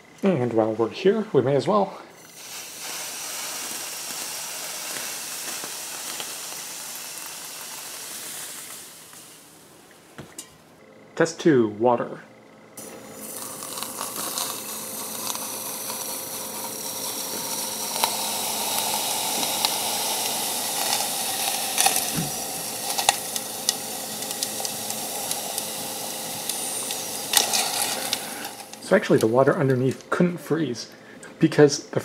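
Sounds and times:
aerosol spray hissing: 2.2s - 9.7s, 12.8s - 29.4s.

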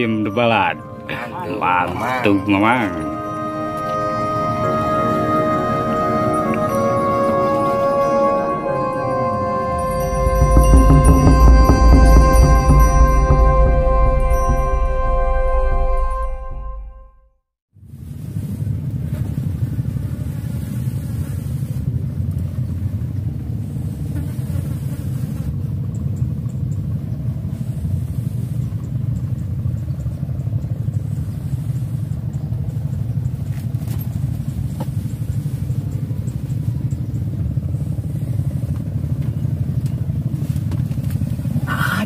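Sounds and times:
low rumble: 0.0s - 17.3s.

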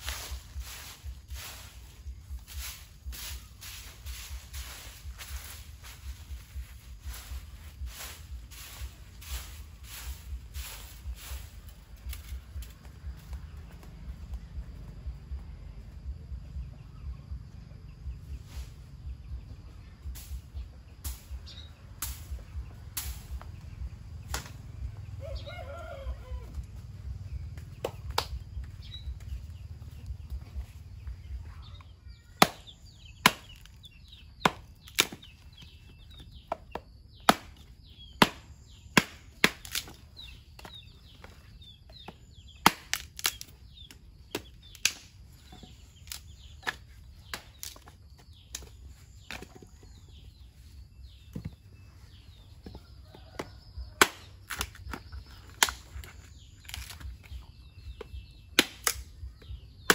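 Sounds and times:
low rumble: 0.0s - 31.9s.

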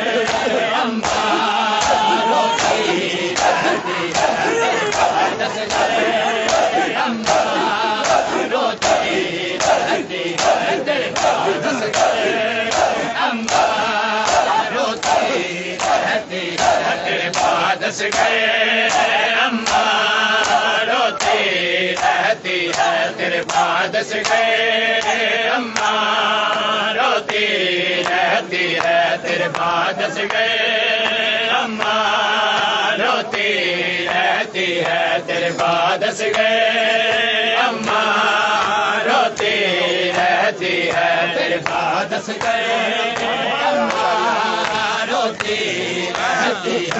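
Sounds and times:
men chanting in unison: 0.0s - 46.9s
hands slapping chests: 0.2s - 18.3s, 18.9s - 21.4s, 43.2s - 46.9s.

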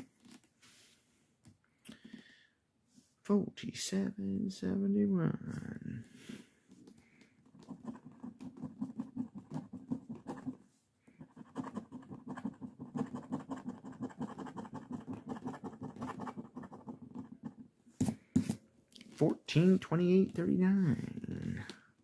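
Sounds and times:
coin scratching lottery ticket: 11.2s - 17.6s.

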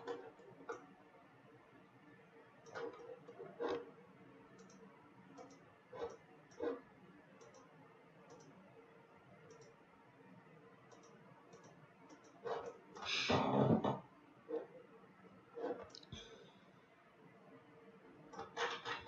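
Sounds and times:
computer mouse and keyboard clicks: 0.0s - 0.8s, 2.6s - 3.9s, 4.6s - 4.8s, 5.4s - 6.8s, 7.4s - 7.7s, 8.3s - 8.6s, 9.5s - 9.8s, 10.9s - 12.8s, 18.4s - 19.0s
faint steady hum: 0.0s - 19.0s.

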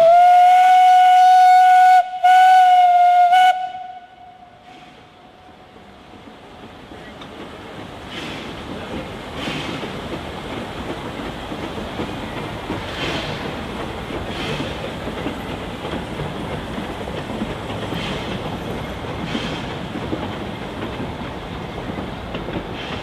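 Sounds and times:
train wheels rumbling on rail: 0.0s - 23.0s
wheels clacking over rail joints: 6.5s - 23.0s.

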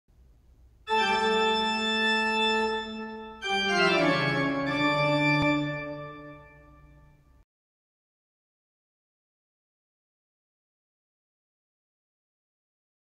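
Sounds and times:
organ-like keyboard chords: 0.9s - 7.3s.

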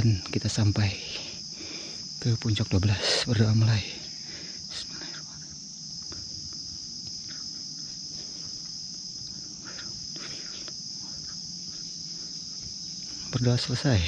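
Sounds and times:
insects high-pitched chorus: 0.0s - 14.0s.

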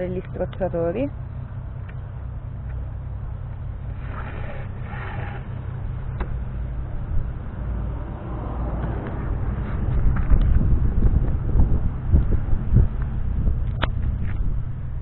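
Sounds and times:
low steady rumble: 0.0s - 15.0s
rope scraping through cleats: 4.0s - 5.6s.

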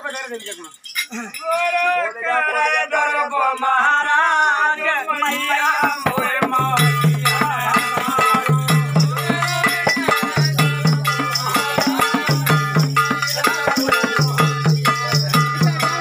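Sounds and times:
jingling bells rattle: 0.0s - 16.0s
person singing: 1.1s - 16.0s
dholak drumming: 5.0s - 16.0s.

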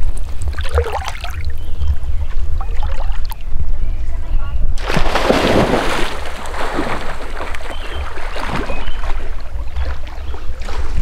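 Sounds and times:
wind buffeting microphone: 0.0s - 11.0s
small waves lapping: 4.8s - 11.0s.

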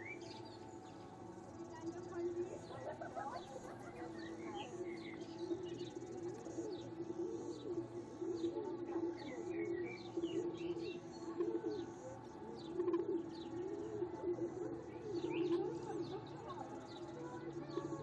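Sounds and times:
birds chirping: 0.0s - 18.0s
low wavering bird call: 4.6s - 16.1s.

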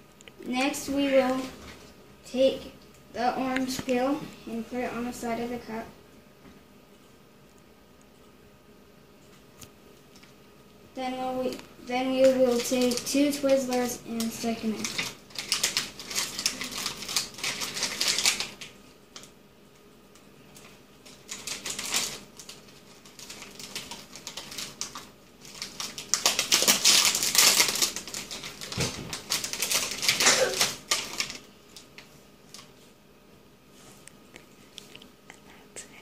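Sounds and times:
plastic candy bag crinkling: 11.3s - 19.4s, 20.5s - 32.7s.

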